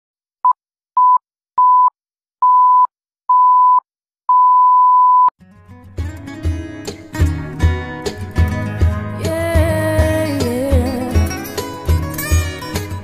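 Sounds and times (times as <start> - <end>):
music: 5.4 - 13.0.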